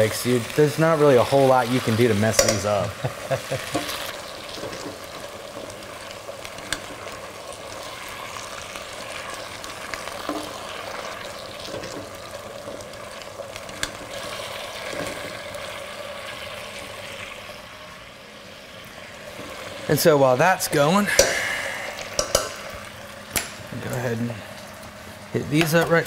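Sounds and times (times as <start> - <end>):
vegetables sizzling in a pot: 0.0 - 26.0
spatula stirring: 3.6 - 15.9
spatula clicking against pot: 22.1 - 22.5.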